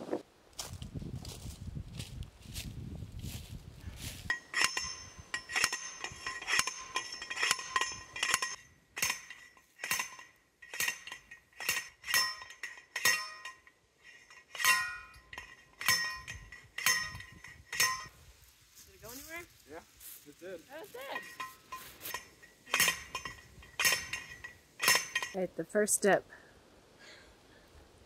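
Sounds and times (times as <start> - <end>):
metal driver clanking on pipe: 4.3 - 18.1, 21.2 - 25.4.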